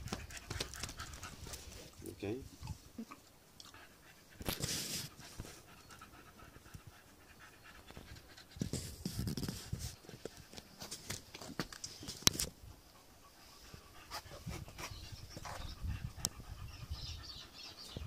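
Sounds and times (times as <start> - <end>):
dog panting: 0.0 - 2.0, 3.6 - 10.8, 12.8 - 18.0.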